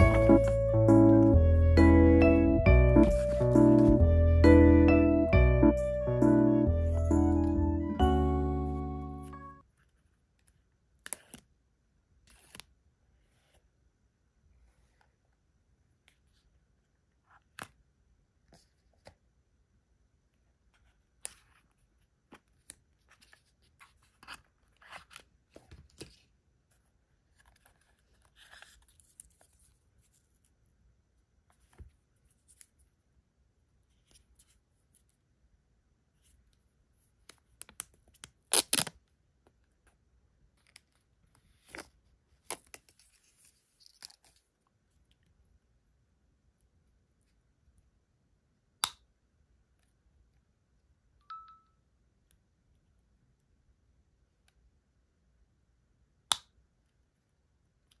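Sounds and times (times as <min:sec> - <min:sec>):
paper packaging rustling: 0:02.9 - 0:04.0.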